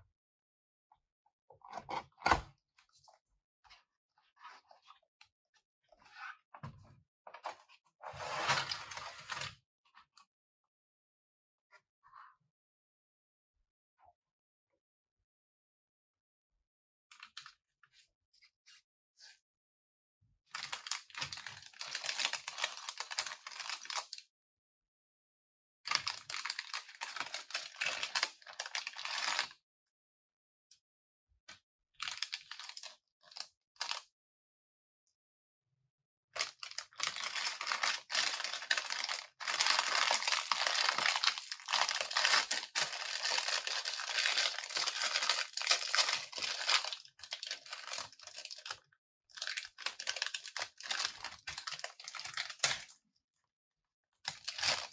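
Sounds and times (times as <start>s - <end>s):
plastic bags crinkling: 21.4s - 24.0s, 26.1s - 29.4s, 36.4s - 48.7s, 49.4s - 52.8s, 54.3s - 54.9s.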